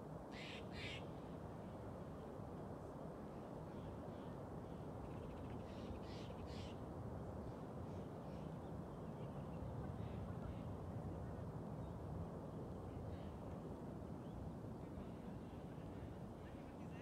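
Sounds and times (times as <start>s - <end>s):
faint high-pitched calls: 0.4s - 1.1s.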